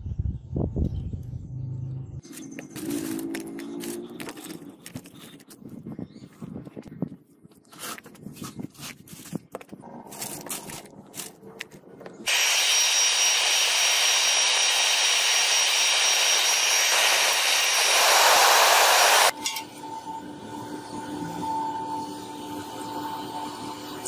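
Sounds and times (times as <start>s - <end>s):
gas torch hissing: 12.3s - 19.3s
faint high whine: 12.3s - 24.0s.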